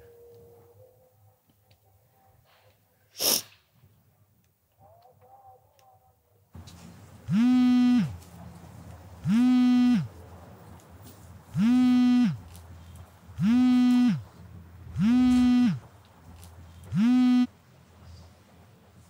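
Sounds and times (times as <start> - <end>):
smartphone vibrating on table: 7.3 - 8.2, 9.2 - 10.1, 11.6 - 12.4, 13.4 - 14.3, 14.9 - 15.8, 16.9 - 17.5.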